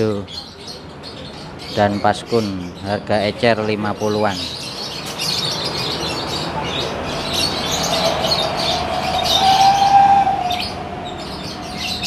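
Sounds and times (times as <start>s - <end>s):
lovebirds chirping: 0.0s - 12.0s
drawn-out rising tone: 5.7s - 12.0s.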